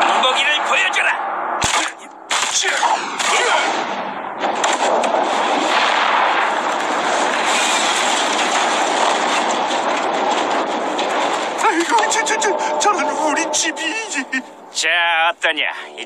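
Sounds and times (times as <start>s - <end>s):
fire roaring and crackling: 4.4s - 12.9s.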